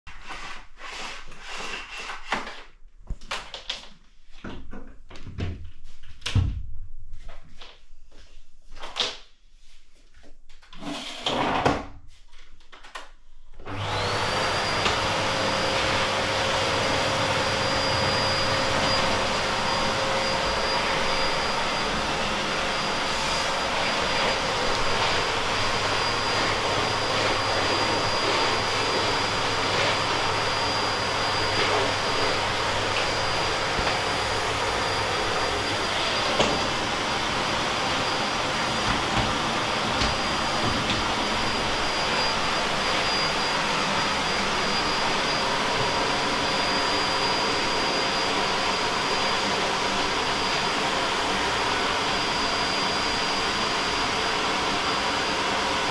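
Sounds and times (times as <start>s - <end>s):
vacuum cleaner running: 13.6s - 55.9s.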